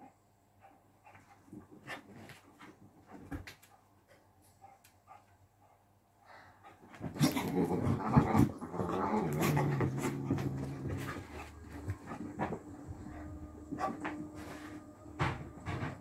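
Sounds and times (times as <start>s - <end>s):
scuffling and knocks: 6.9s - 16.0s
puppy growling: 7.0s - 14.2s.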